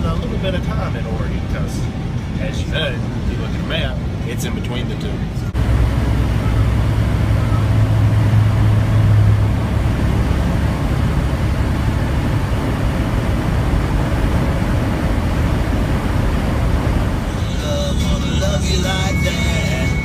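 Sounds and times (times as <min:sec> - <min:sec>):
diesel truck engine drone: 0:00.0 - 0:20.0
road and wind noise: 0:00.0 - 0:20.0.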